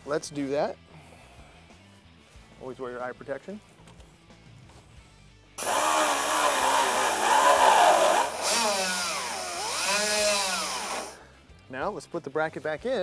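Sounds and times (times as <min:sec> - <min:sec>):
pneumatic die grinder whining: 0:05.6 - 0:11.2.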